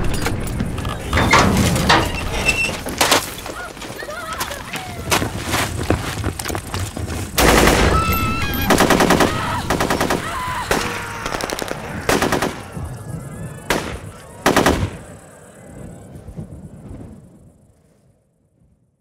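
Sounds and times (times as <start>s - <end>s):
automatic gunfire: 7.4s - 12.8s, 13.7s - 15.0s
single gunshots: 7.4s - 12.8s, 13.7s - 15.0s.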